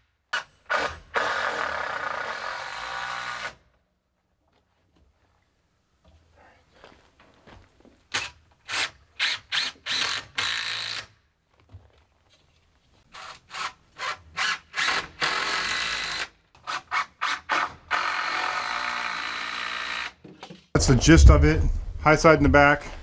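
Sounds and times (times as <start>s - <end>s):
cordless drill driving screws: 0.4s - 3.6s, 8.1s - 11.1s, 13.1s - 20.2s.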